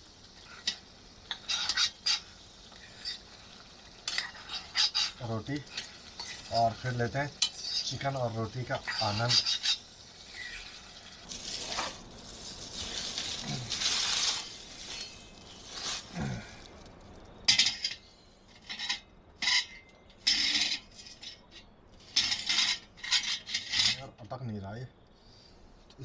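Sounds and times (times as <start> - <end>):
metal utensils rustling and scraping: 0.0 - 24.1
metal utensils clinking: 0.6 - 12.0.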